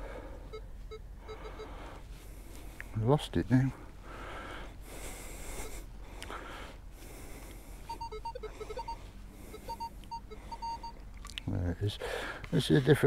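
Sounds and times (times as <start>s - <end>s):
metal detector beeps: 0.5s - 1.8s, 7.9s - 11.0s.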